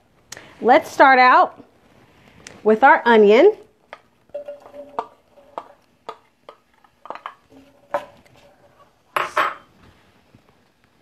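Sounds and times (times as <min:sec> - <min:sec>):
utensil clinking on glass and metal: 0:04.3 - 0:05.7.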